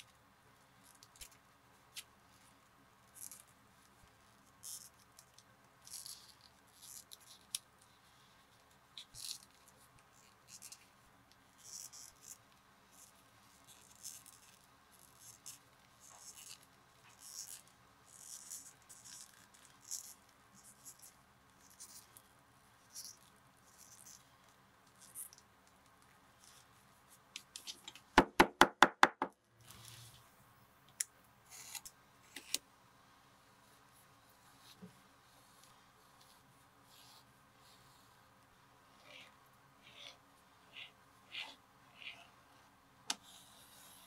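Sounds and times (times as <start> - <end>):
hammer tapping leather: 28.2 - 29.4.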